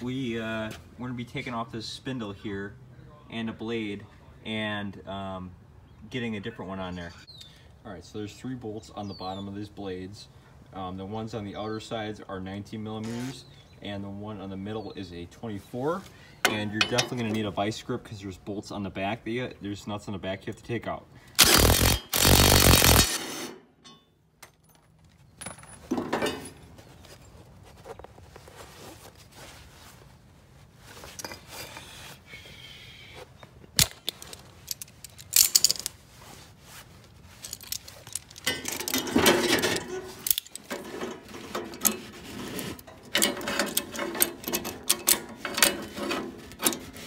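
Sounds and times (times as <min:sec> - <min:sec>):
metal tools clinking and scraping: 0:16.4 - 0:17.6, 0:23.8 - 0:28.1, 0:31.0 - 0:31.9, 0:33.4 - 0:36.0, 0:37.3 - 0:47.0
loud burst of noise: 0:21.4 - 0:23.6
clicks and clanks: 0:33.8 - 0:35.9, 0:37.4 - 0:47.0.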